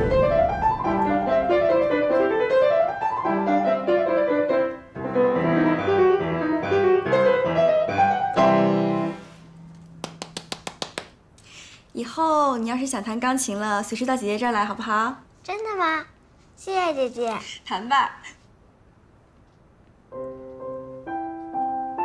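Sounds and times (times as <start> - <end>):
piano playing runs: 0.0 - 10.5, 20.1 - 22.0.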